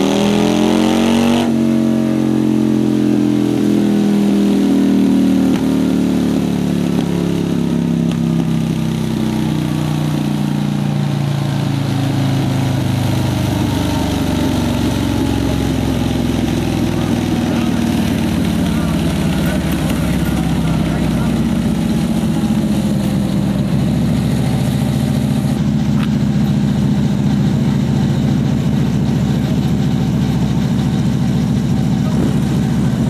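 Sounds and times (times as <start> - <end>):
motorcycle engine revving on dyno: 0.0 - 33.0.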